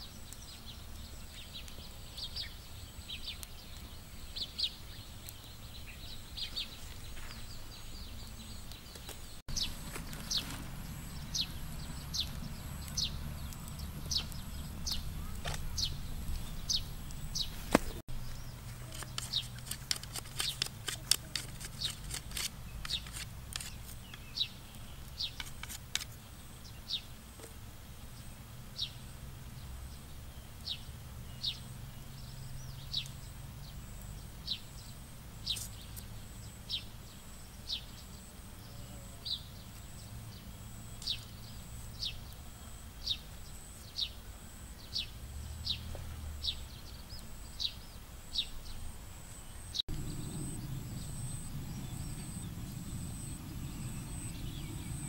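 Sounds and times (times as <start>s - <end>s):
bird chirping: 0.0s - 25.6s, 44.8s - 55.0s
knife shaving bamboo: 18.7s - 24.1s, 25.3s - 26.1s.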